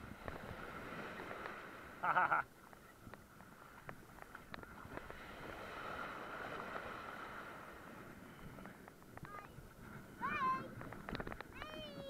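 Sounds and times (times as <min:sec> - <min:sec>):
surf washing around kayak hull: 0:00.0 - 0:12.0.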